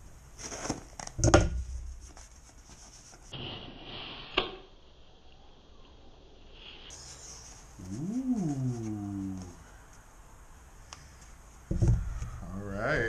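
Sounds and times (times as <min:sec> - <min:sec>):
knocks on cardboard box: 0:11.7 - 0:12.1.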